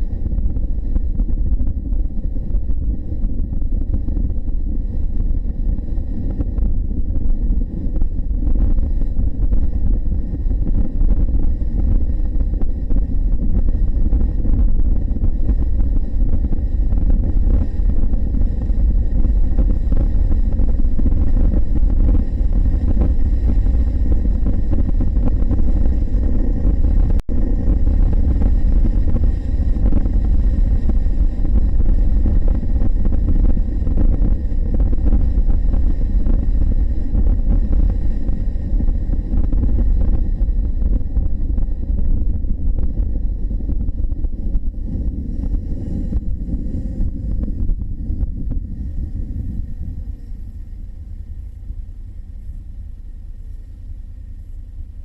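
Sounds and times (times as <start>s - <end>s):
motorcycle wind and road rush: 0.0s - 50.8s.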